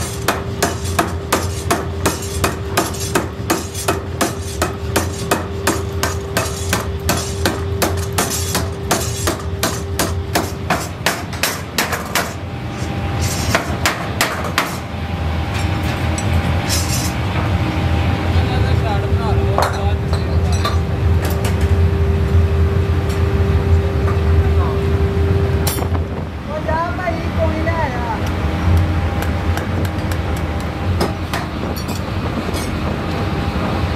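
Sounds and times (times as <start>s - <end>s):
power hammer striking hot steel: 0.0s - 14.9s, 25.6s - 26.0s, 28.7s - 33.8s
machinery humming: 0.0s - 33.9s.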